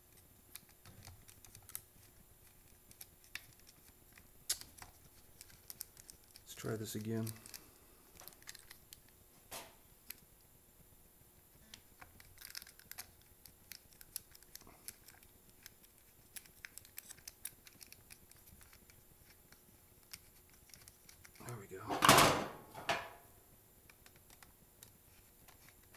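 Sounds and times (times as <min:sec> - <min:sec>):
small plastic parts clicking: 0:08.2 - 0:09.1, 0:11.7 - 0:21.4.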